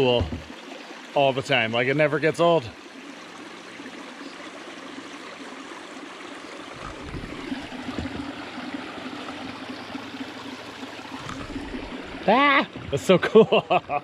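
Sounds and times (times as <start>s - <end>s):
low bumps: 0.0s - 0.6s
stream running over rocks: 0.0s - 14.0s.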